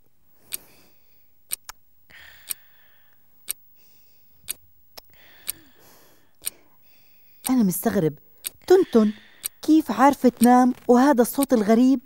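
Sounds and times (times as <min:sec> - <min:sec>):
alarm clock ticking: 0:07.4 - 0:07.7.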